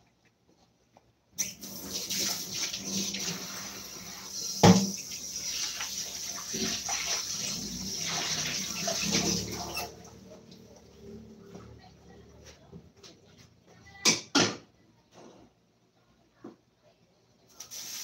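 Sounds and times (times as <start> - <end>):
tap water running into steel sink: 1.4 - 10.6
pan knocking against sink: 4.6 - 5.0.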